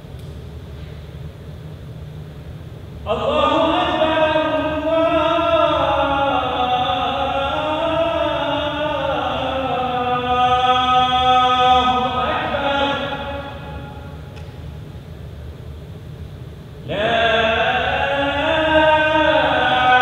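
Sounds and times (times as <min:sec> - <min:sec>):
man chanting call to prayer: 0:03.1 - 0:14.1, 0:16.9 - 0:20.0.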